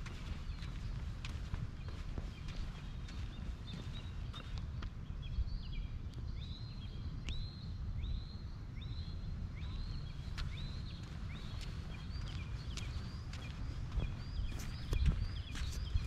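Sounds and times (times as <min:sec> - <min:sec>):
footstep clicks: 0:00.0 - 0:05.0, 0:10.3 - 0:16.0
songbird chirping: 0:00.0 - 0:16.0
steady low rumble: 0:00.0 - 0:16.0.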